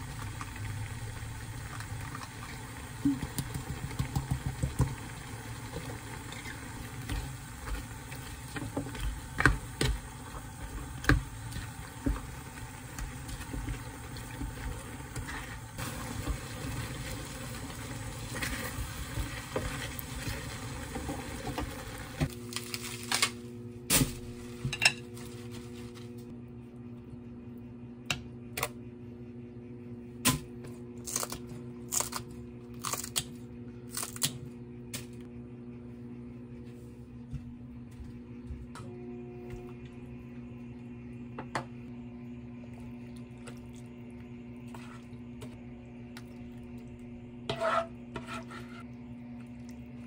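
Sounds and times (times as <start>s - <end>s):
light sizzle: 0.0s - 26.4s
steady low hum: 0.0s - 50.0s
lettuce leaves tearing: 31.0s - 33.3s
spatula scraping frying pan: 47.5s - 48.9s.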